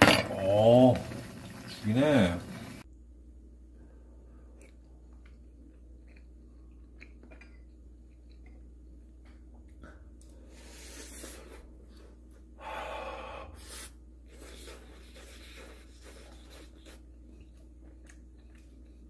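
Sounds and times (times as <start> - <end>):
low room hum: 0.0 - 19.0
person chewing: 4.5 - 12.1, 13.7 - 19.0
breathy exhales: 12.6 - 13.9.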